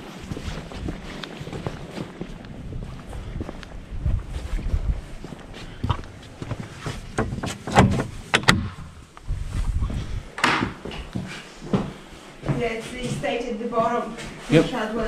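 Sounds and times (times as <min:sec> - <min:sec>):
wooden door opening: 0:06.8 - 0:08.9.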